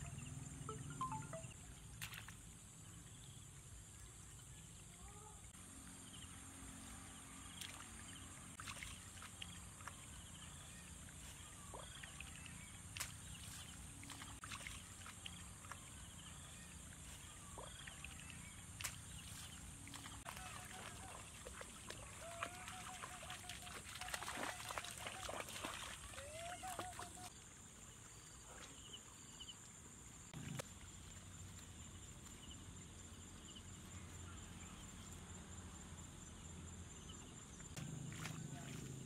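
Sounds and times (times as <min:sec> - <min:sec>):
splashes in shallow water: 0:00.7 - 0:02.6, 0:06.5 - 0:29.2, 0:37.7 - 0:39.0.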